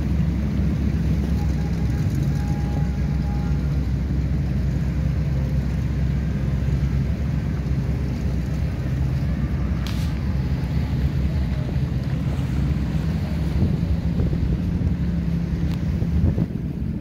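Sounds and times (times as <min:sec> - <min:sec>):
motorboat engines droning: 0:00.0 - 0:17.0
wind buffeting microphone: 0:08.0 - 0:17.0.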